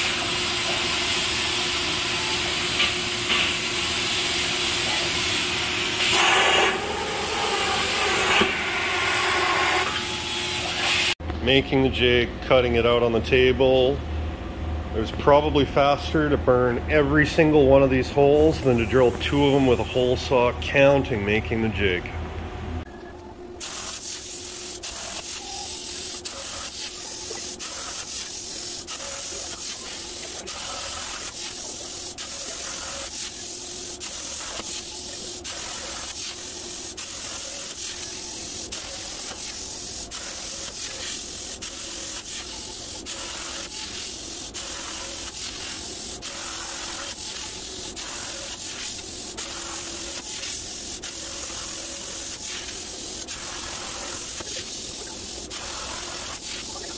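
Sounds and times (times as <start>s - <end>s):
plasma cutter hissing: 0.0s - 11.2s, 18.4s - 20.2s, 23.6s - 56.9s.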